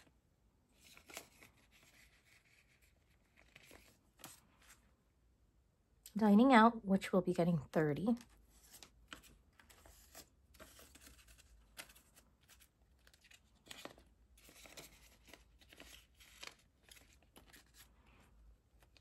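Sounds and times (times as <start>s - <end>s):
paper banknotes rustling: 0.7s - 4.9s, 8.2s - 19.0s.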